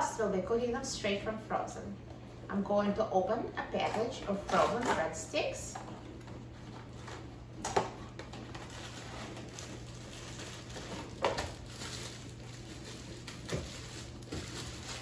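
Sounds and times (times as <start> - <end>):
plastic bag rustling: 5.9 - 15.0.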